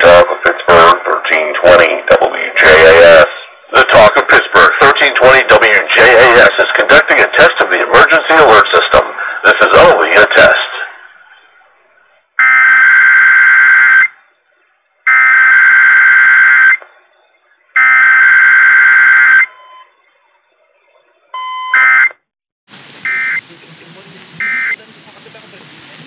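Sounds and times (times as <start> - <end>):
buzzing data bursts over radio: 24.4 - 24.8.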